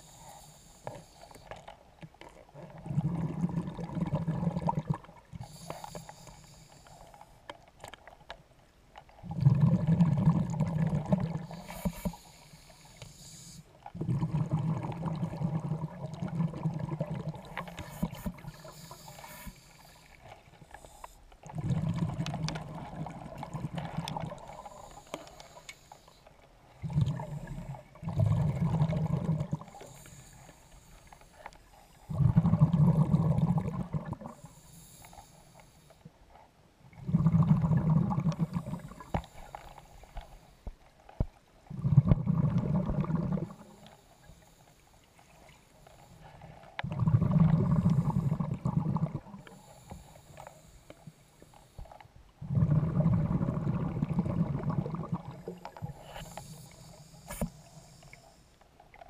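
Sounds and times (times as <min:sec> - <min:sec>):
regulator inhale hiss: 0:00.0 - 0:01.6, 0:05.4 - 0:07.4, 0:11.4 - 0:13.8, 0:17.6 - 0:21.3, 0:24.4 - 0:26.3, 0:29.7 - 0:32.1, 0:34.3 - 0:36.1, 0:38.4 - 0:40.7, 0:43.5 - 0:46.5, 0:49.4 - 0:52.1, 0:55.6 - 0:58.6
exhaled air bubbling: 0:01.4 - 0:06.0, 0:09.0 - 0:13.0, 0:13.6 - 0:25.6, 0:26.2 - 0:34.5, 0:36.8 - 0:44.4, 0:45.2 - 0:50.6, 0:51.8 - 0:59.0.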